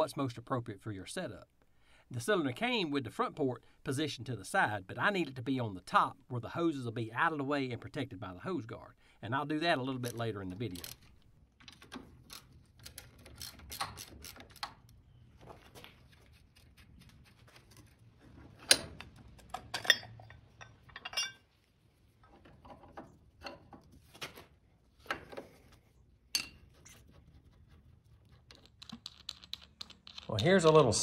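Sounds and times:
metal parts clinking and knocking: 10.0 - 14.7, 18.7 - 21.5, 28.5 - 30.9.

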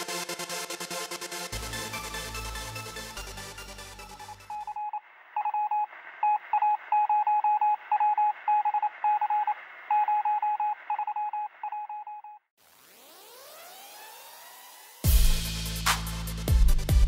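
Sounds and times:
electronic dance music: 0.0 - 4.7, 12.6 - 17.0
telegraph-style electronic beeps: 4.3 - 12.4.

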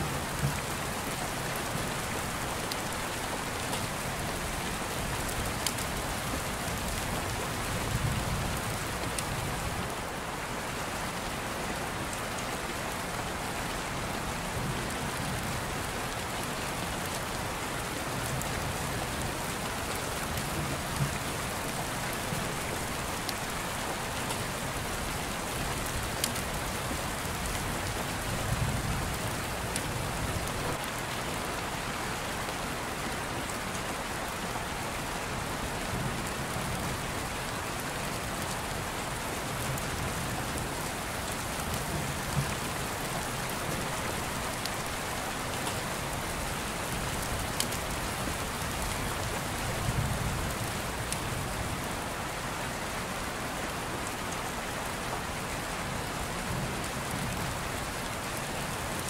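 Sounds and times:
steady rain hiss: 0.0 - 59.0.

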